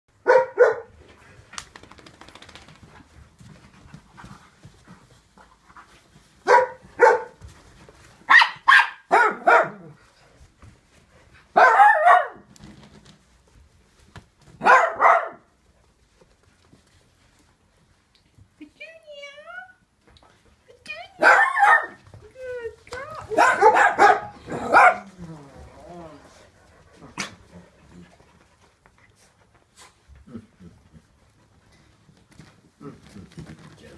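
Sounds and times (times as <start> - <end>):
dog barking: 0.2 - 0.9, 6.4 - 7.4, 8.3 - 9.9, 11.6 - 12.5, 14.6 - 15.5, 21.2 - 22.0, 23.3 - 25.1.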